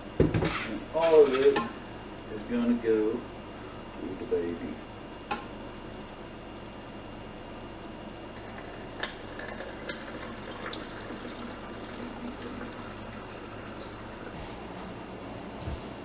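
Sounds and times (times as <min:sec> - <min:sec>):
milk trickling into a bottle: 0:08.4 - 0:14.5.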